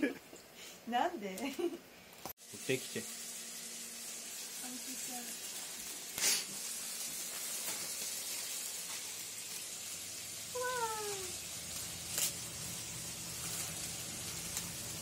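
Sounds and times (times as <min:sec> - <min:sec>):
plastic wrapping crinkling: 0:10.7 - 0:15.0.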